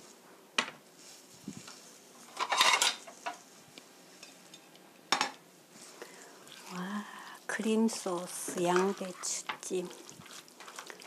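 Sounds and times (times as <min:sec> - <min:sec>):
pot and plate clattering: 0:02.3 - 0:03.4.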